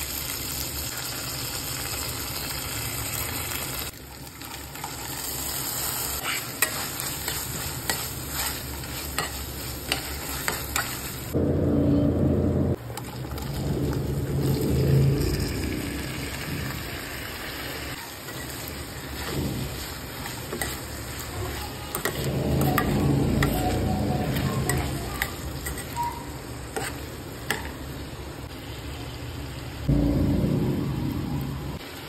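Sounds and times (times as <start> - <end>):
potatoes sizzling in hot oil: 0.0 - 11.4, 12.8 - 29.9
spoon scraping a pan: 6.0 - 11.3, 18.3 - 27.7.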